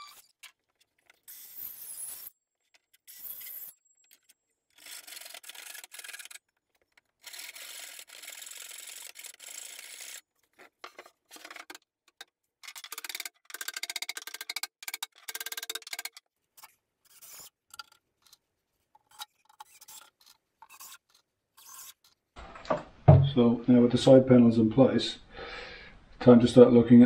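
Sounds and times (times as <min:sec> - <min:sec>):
rubbing and rasping on wood: 0:16.6 - 0:22.2.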